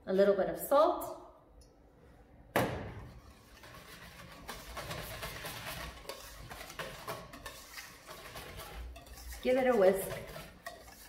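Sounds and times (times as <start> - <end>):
whisk scraping metal bowl: 3.0 - 11.0.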